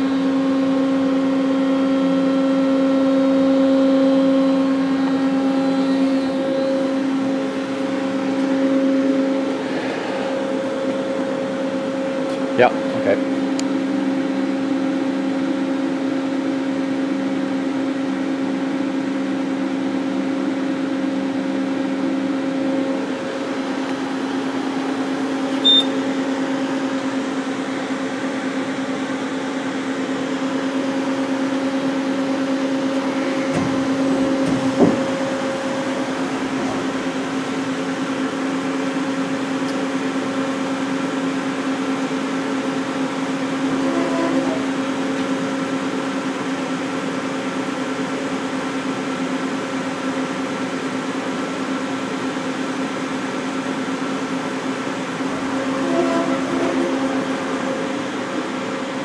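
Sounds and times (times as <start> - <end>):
machine hum: 0.0 - 50.3, 51.1 - 59.0
high beep: 25.6 - 26.0.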